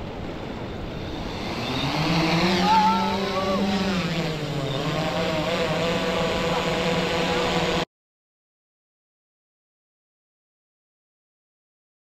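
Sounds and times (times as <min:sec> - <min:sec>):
drone rotors humming: 0:00.0 - 0:07.8
wavering high sound: 0:00.8 - 0:06.8.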